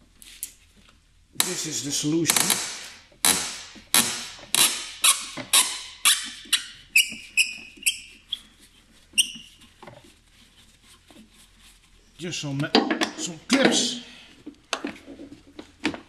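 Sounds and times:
short high squeaks: 0:04.6 - 0:09.8.

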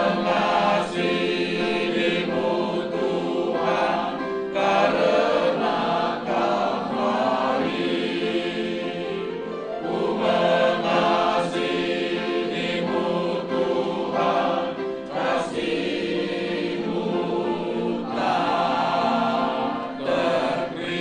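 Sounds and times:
choir singing a slow hymn: 0:00.0 - 0:21.0.

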